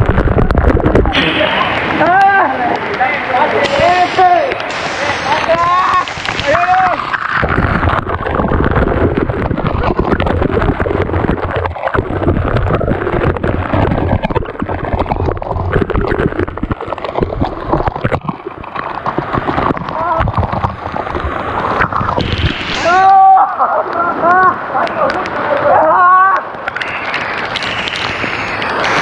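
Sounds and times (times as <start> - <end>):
waterfall splashing: 0.0 - 29.0
people's voices: 1.1 - 7.2, 22.8 - 26.6.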